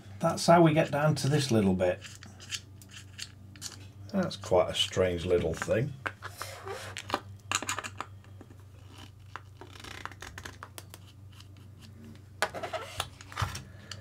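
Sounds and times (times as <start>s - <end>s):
low steady hum: 0.0s - 14.0s
plastic parts clicking and scraping: 2.0s - 3.8s.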